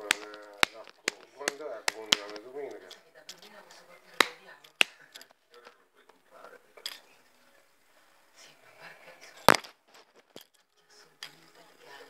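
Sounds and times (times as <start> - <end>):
handling clicks: 0.0 - 3.0.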